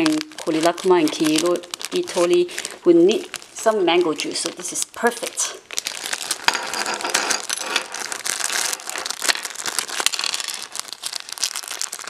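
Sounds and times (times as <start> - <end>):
plastic bag crinkling: 0.0 - 12.0
small plastic pieces dropping: 5.8 - 12.0.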